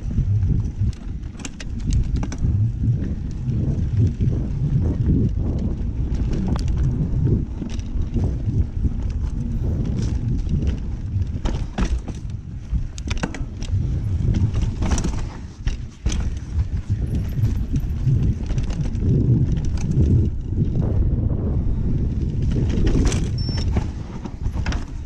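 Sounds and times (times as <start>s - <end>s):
bike rattling over rocks: 0.0s - 25.0s
wind rumbling on microphone: 0.0s - 25.0s.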